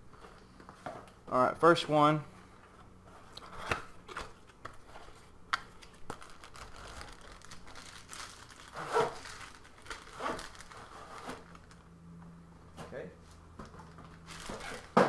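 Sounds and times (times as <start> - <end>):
plastic wrapping crinkling: 3.4 - 11.9, 13.6 - 15.0
cardboard rustling: 13.7 - 15.0.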